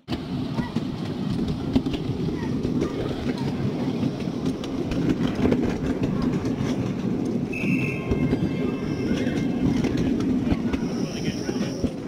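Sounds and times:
wheels rumbling on rail: 0.0s - 12.0s
high-pitched wheel squeal: 7.5s - 9.6s.

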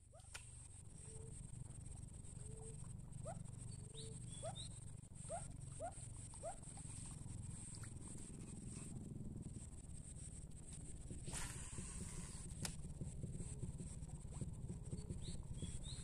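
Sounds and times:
faint low rumble: 0.0s - 16.0s
animal chirping: 2.4s - 6.6s.

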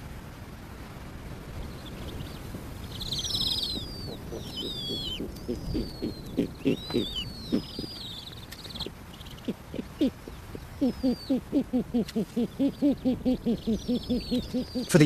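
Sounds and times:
low wind rumble: 0.0s - 15.0s
owl high sliding calls: 3.0s - 15.0s
owl short low calls: 3.4s - 15.0s.

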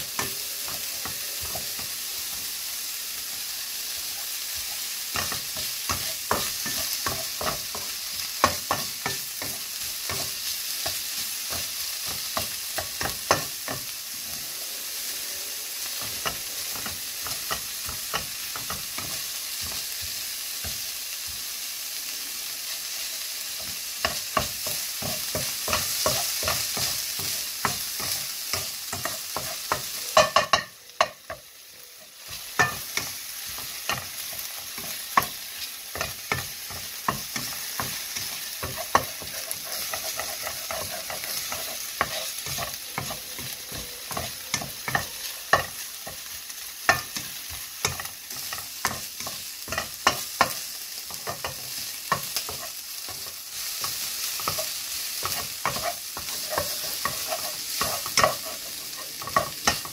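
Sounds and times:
spatula scraping a wok: 0.0s - 21.4s, 22.4s - 59.9s
food sizzling in a wok: 0.0s - 59.9s
spatula knocking against pan: 24.1s - 31.5s.

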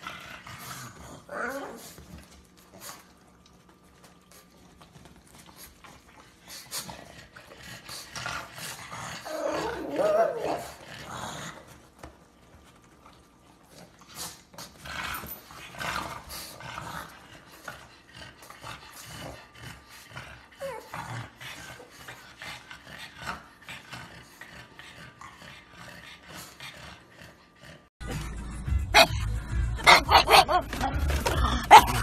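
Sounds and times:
dogs growling and grunting: 0.0s - 3.2s, 5.7s - 11.9s, 13.3s - 32.0s
dog panting: 12.5s - 28.3s.

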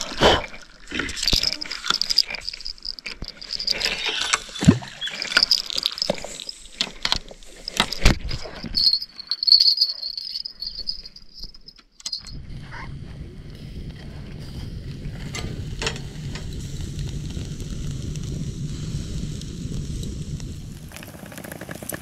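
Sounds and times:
insects chirping: 0.7s - 12.4s.

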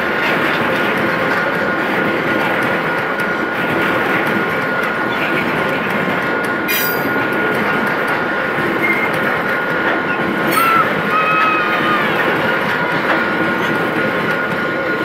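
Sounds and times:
train wheels rumbling on rail: 0.0s - 15.0s
wheel screech: 10.1s - 12.3s.

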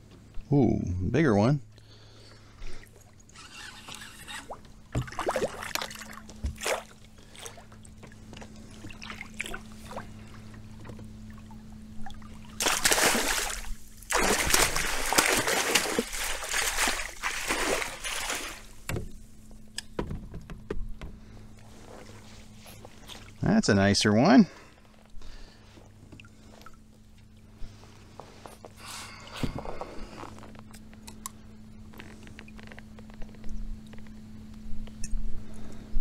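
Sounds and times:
fish splashing at the surface: 12.4s - 18.8s.

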